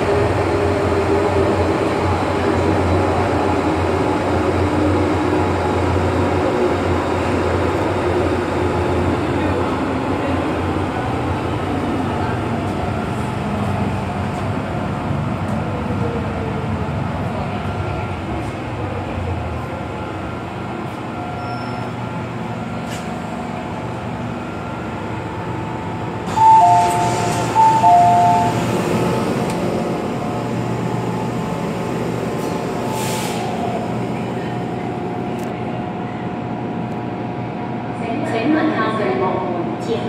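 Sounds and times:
train running noise: 0.0 - 40.0
train doors opening: 20.8 - 23.4, 26.1 - 30.2, 32.2 - 35.6.

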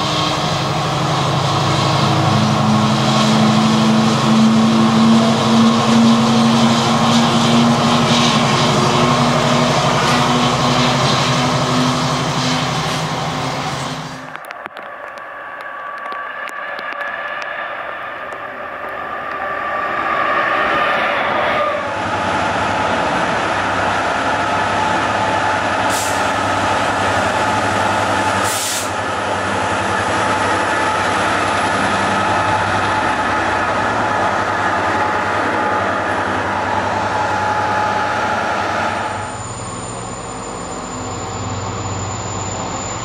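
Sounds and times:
diesel locomotive engine running: 0.0 - 43.0
short air hisses: 25.9 - 26.3, 28.4 - 29.0.

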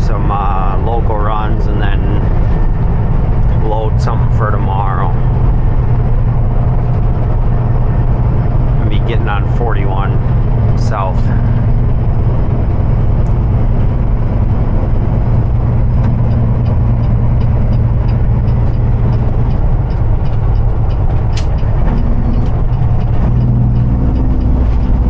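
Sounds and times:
diesel truck engine drone: 0.0 - 25.0
faint regular ticking: 0.0 - 25.0
road noise: 0.0 - 25.0.

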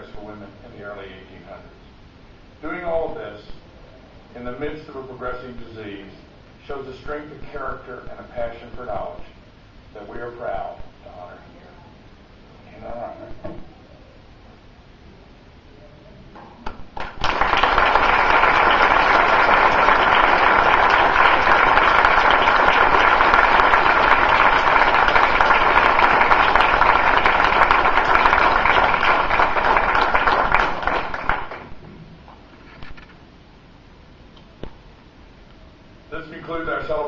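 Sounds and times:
audience applauding: 16.9 - 31.8.

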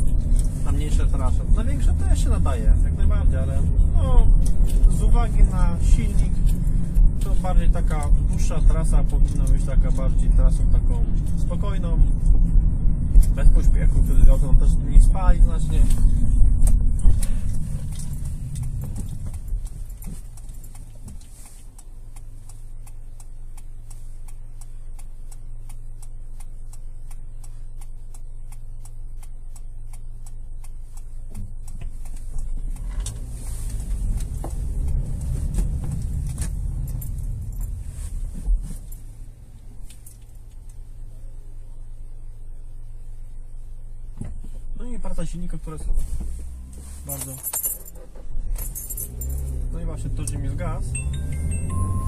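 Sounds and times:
car engine and road noise: 0.0 - 52.0
faint regular ticking: 0.2 - 37.8.

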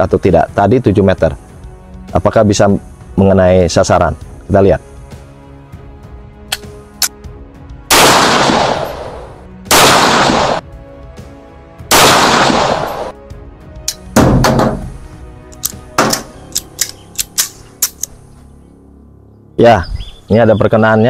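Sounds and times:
pistol shots with echo: 7.9 - 10.6, 11.9 - 13.2
light clicks: 15.5 - 18.2.

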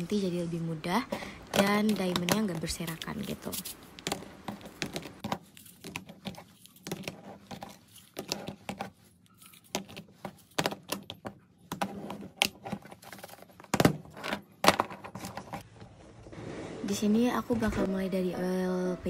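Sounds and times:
plastic containers clicking: 1.4 - 3.1.

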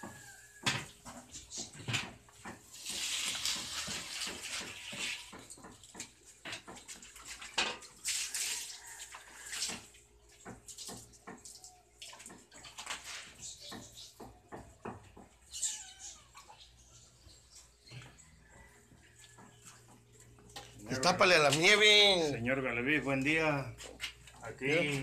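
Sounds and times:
batter sizzling on hot plates: 2.3 - 11.0.

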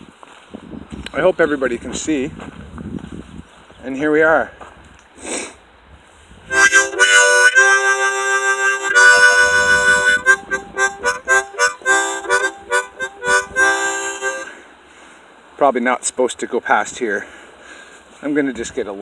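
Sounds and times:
harmonica chords: 6.5 - 14.7.

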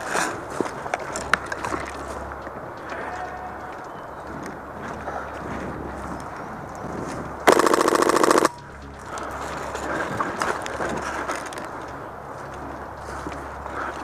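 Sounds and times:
footsteps in dry leaves: 0.0 - 7.4, 8.6 - 14.0
airsoft rifle full-auto burst: 7.5 - 8.6.

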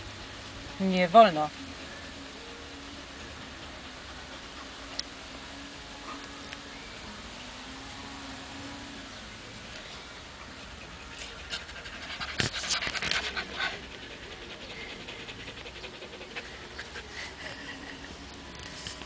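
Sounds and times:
dog panting: 3.1 - 5.0, 10.6 - 18.2.

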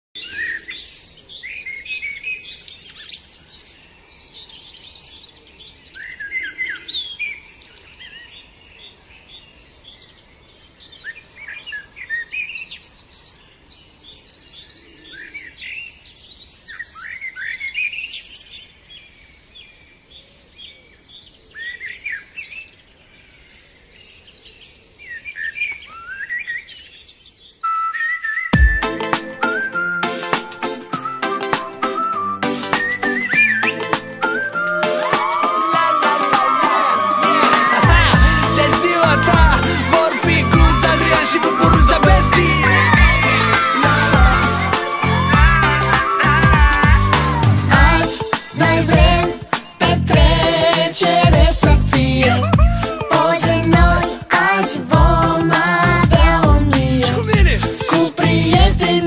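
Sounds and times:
birds chirping and singing: 0.2 - 29.9, 32.0 - 59.0
music: 28.6 - 59.0.

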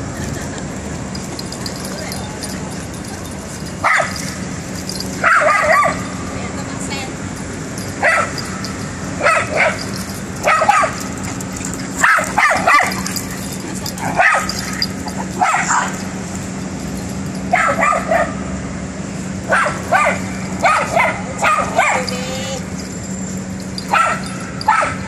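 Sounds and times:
dog barking: 3.8 - 4.2, 5.2 - 6.0, 9.2 - 9.8, 10.4 - 11.0, 12.0 - 13.0, 14.1 - 14.6, 17.5 - 18.4, 19.5 - 22.1, 23.9 - 25.0.

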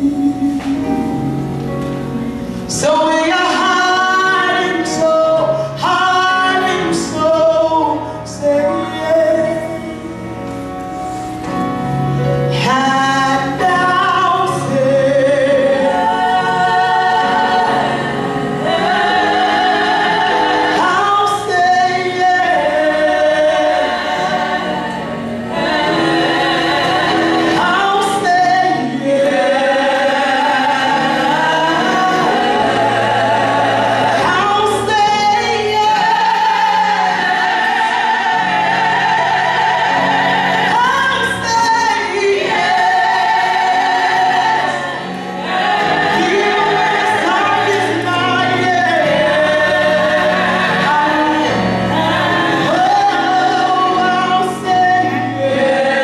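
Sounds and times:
backing singers: 0.0 - 56.0
woman singing gospel song: 2.7 - 9.4.

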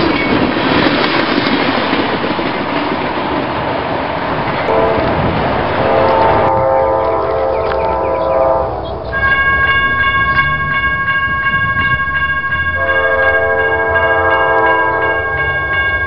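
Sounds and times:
locomotive air horn blasts: 4.7 - 9.4, 12.8 - 15.5
crossing warning bell ringing: 4.7 - 16.0.

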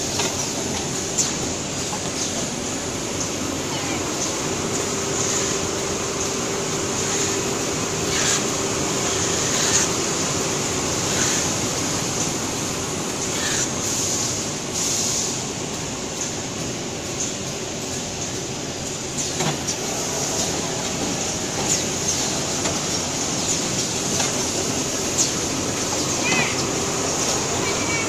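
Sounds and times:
packaging machine running: 0.0 - 14.4, 18.7 - 28.0.

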